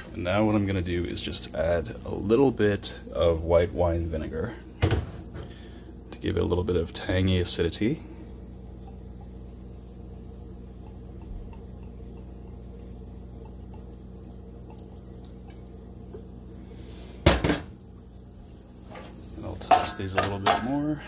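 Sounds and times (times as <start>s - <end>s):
vinegar pouring into a pan: 0.0s - 21.0s
low hum: 2.8s - 18.8s
mushrooms clattering in metal pan: 18.9s - 20.8s.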